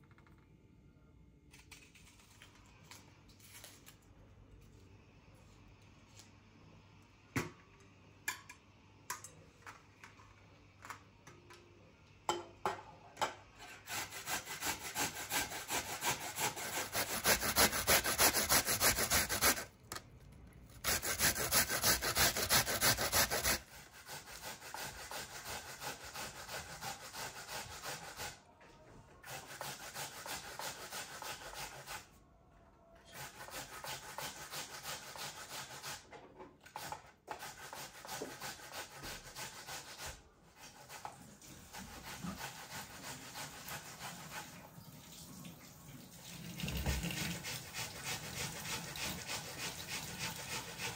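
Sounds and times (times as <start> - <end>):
onion grated on metal grater: 13.6 - 19.7, 20.8 - 28.4, 29.2 - 32.1, 41.7 - 44.5, 47.1 - 50.9.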